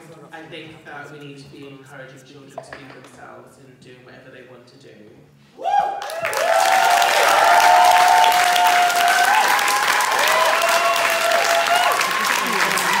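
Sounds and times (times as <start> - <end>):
whoops and cheers: 5.6 - 13.0
audience applause: 6.0 - 13.0.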